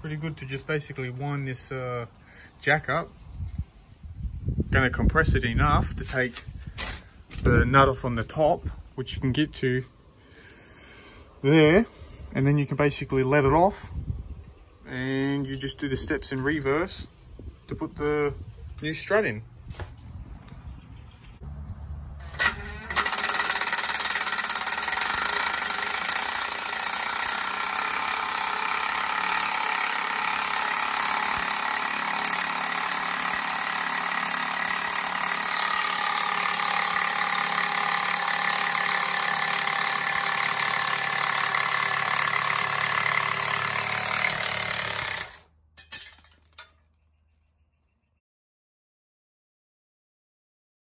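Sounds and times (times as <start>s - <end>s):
cordless drill running: 22.2s - 45.5s.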